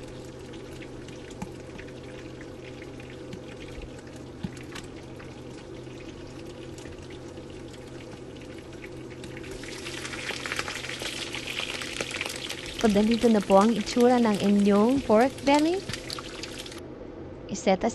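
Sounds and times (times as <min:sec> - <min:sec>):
pork sizzling in a wok: 0:07.5 - 0:16.8.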